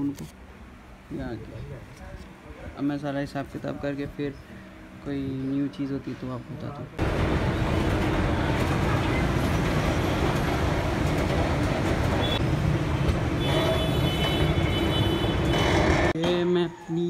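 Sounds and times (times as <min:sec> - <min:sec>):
vehicle rumble and hiss: 0:00.0 - 0:15.3.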